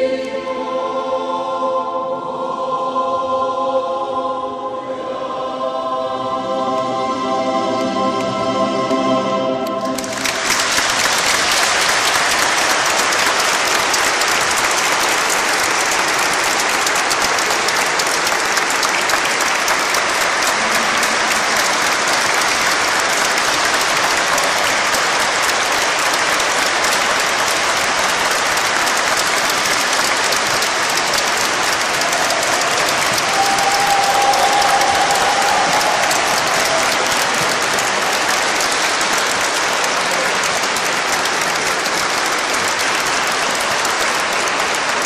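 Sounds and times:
audience applauding: 9.6s - 45.0s.

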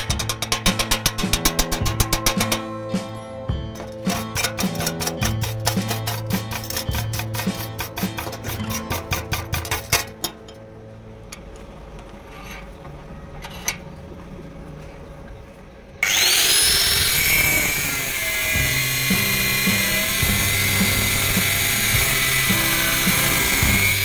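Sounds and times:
background music: 0.0s - 14.2s, 16.1s - 24.0s
angle grinder whining: 16.0s - 24.0s.

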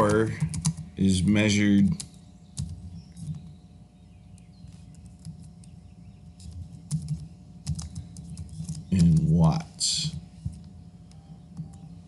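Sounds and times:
computer keyboard clicks: 0.0s - 0.9s, 6.5s - 9.3s
low steady hum: 0.0s - 12.0s.

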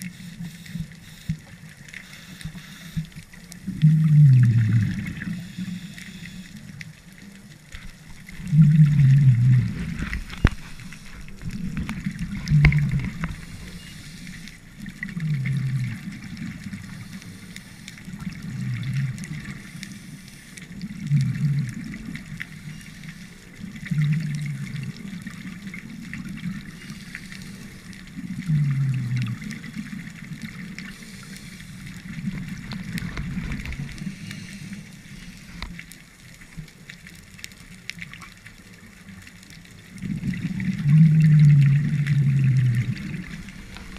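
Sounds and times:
underwater hiss: 0.0s - 7.2s, 8.3s - 35.8s, 40.0s - 43.9s
exhaled bubbles rushing: 3.6s - 5.4s, 7.8s - 13.9s, 14.7s - 17.0s, 18.1s - 19.7s, 20.8s - 22.8s, 23.6s - 31.2s, 31.9s - 35.7s, 39.9s - 43.9s.

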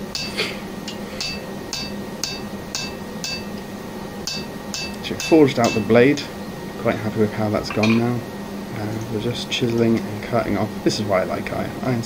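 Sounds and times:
hammer striking chisel on metal: 0.9s - 3.5s, 4.3s - 5.9s, 7.7s - 8.1s.

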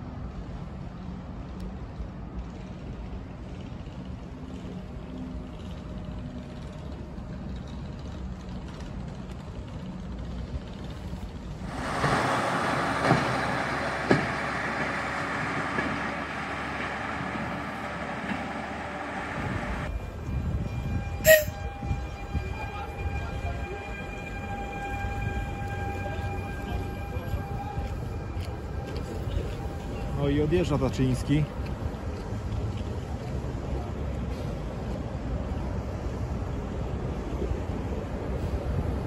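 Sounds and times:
train whining tones: 10.6s - 31.6s
rushing noise: 11.4s - 31.9s.

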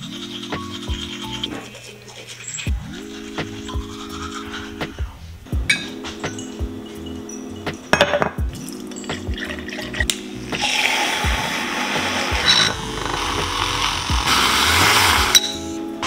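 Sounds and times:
glassware clinks: 5.7s - 10.1s, 15.3s - 15.6s
milk frother whirring: 10.6s - 15.4s.

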